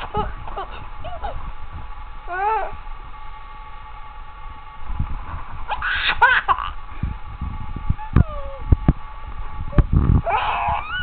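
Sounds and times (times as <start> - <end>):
baby squealing: 5.8 - 6.5, 10.3 - 11.0.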